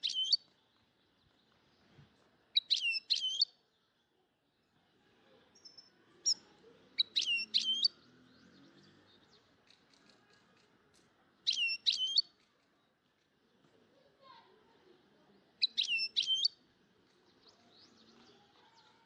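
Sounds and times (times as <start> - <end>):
small bird chirping: 0.0 - 3.6, 5.4 - 10.6, 11.4 - 12.6, 15.4 - 19.0.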